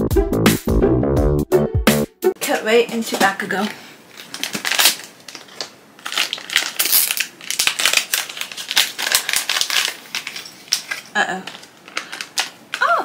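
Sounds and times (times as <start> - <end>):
foil packet crinkling: 3.2 - 13.0.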